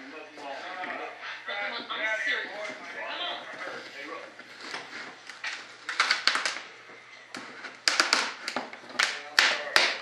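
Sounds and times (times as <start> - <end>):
strip snapping and cracking: 5.3 - 6.7, 7.8 - 10.0.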